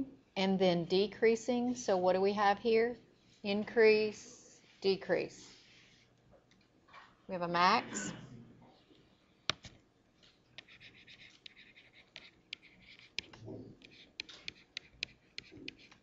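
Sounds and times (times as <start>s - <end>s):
stylus scratching strokes: 10.6s - 16.0s.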